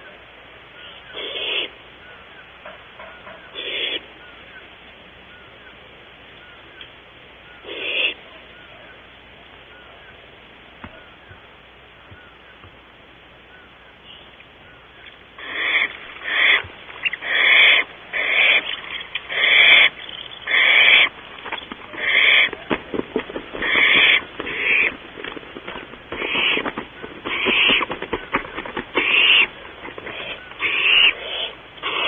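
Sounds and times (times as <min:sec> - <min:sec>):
owls hissing screeches: 0:01.0 - 0:01.8, 0:03.5 - 0:04.1, 0:07.5 - 0:08.2, 0:15.4 - 0:22.6, 0:23.5 - 0:24.9, 0:26.1 - 0:27.9, 0:28.9 - 0:32.0.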